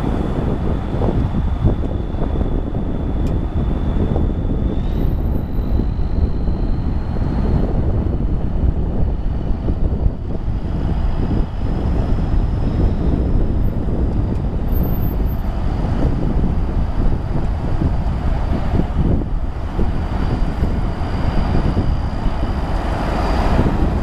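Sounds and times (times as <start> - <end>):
faint high whine: 0.0 - 13.9
wind buffeting microphone: 0.0 - 24.0.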